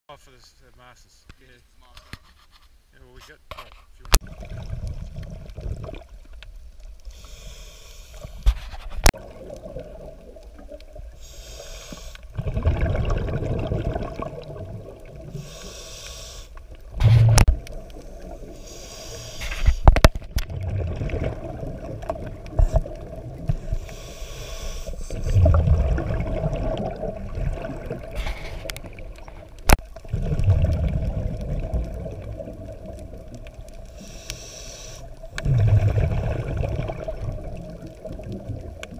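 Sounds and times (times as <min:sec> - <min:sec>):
exhaled bubbles bursts: 0:04.2 - 0:06.3, 0:09.2 - 0:11.2, 0:12.2 - 0:15.5, 0:19.9 - 0:23.9, 0:25.0 - 0:33.9, 0:35.1 - 0:38.9
regulator hissing inhalations: 0:07.1 - 0:08.4, 0:11.1 - 0:12.3, 0:15.3 - 0:16.6, 0:17.9 - 0:19.9, 0:23.5 - 0:25.4, 0:33.9 - 0:35.2.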